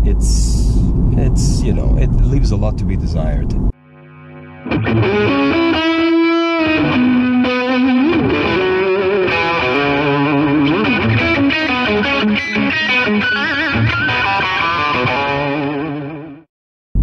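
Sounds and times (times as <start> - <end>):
distorted electric guitar melody: 3.8 - 16.5.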